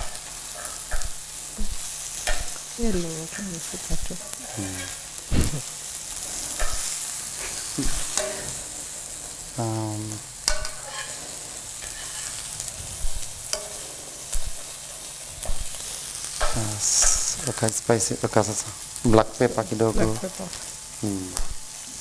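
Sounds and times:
meat and onions sizzling in pan: 0.0 - 22.0
metal spoon clinking on pan: 6.6 - 6.9, 8.0 - 8.5, 10.4 - 11.2, 13.5 - 13.9.

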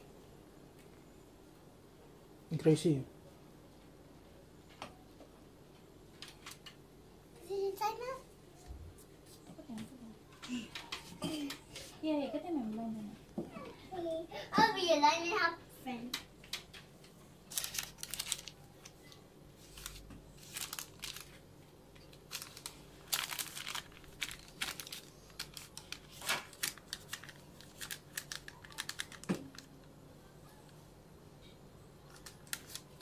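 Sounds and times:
baking paper crinkling: 17.4 - 29.9, 32.0 - 33.0.

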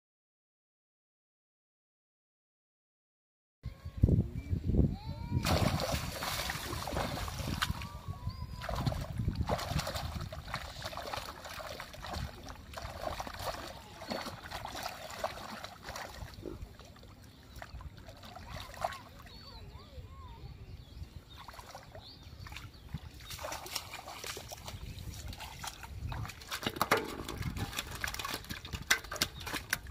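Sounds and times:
hands splashing in shallow water: 5.4 - 17.0, 22.4 - 29.9
water trickling: 5.5 - 19.3, 21.4 - 29.9.

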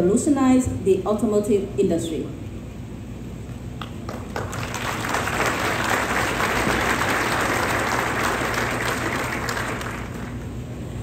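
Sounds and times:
audience applauding: 4.0 - 10.5.

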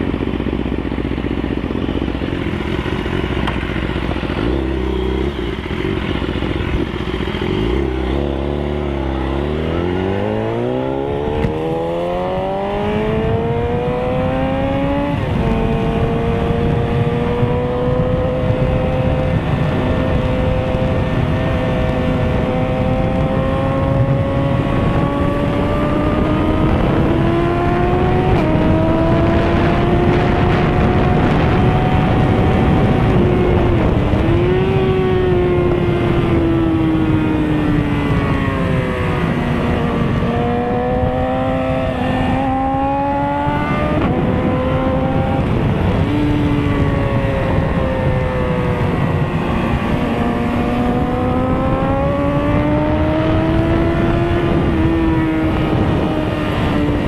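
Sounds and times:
motorcycle engine revving: 0.0 - 57.0
wind rushing on microphone: 0.0 - 57.0.

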